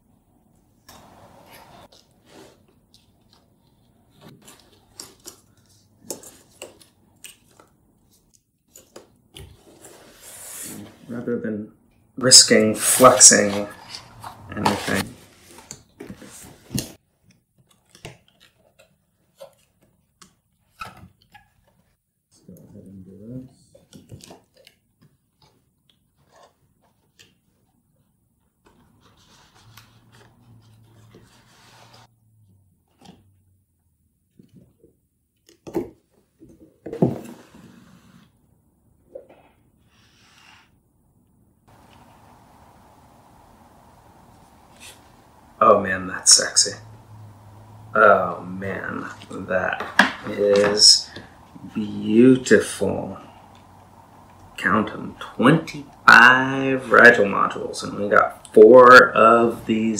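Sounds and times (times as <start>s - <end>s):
cardboard rustling: 12.8s - 22.0s.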